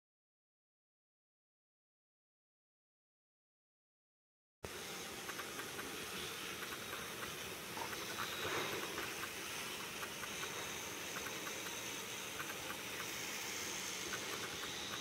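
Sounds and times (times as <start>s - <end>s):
model train whirring: 4.7s - 15.0s
wheels clicking over track: 5.1s - 15.0s.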